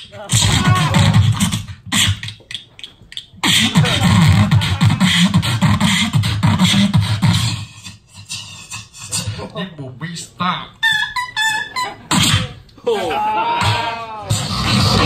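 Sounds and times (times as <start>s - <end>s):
person beatboxing into a microphone: 0.0s - 12.8s, 13.6s - 15.0s
deep bass: 0.2s - 1.8s, 3.6s - 7.5s.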